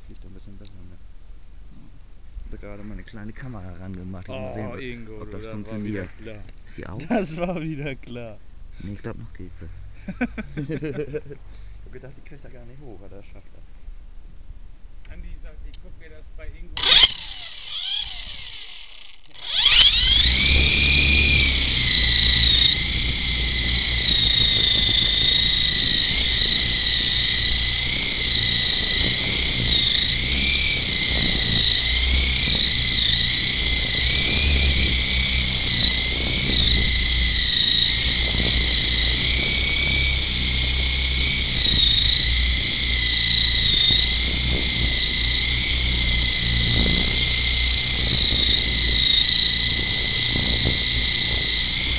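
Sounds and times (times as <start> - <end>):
toy helicopter motor whining: 4.2 - 6.4, 16.8 - 51.9
wind buffeting microphone: 19.6 - 51.9.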